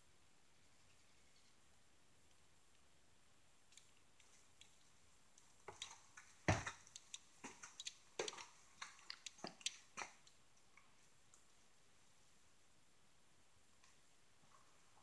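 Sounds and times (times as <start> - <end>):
footsteps on bare floors: 5.7 - 10.2.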